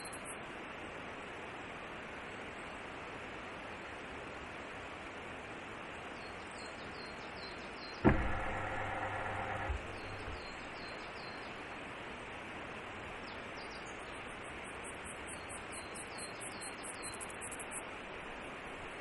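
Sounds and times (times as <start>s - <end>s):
electric motor whirring: 8.0s - 10.6s
motor click: 8.0s - 10.8s
camera knock: 8.1s - 10.6s.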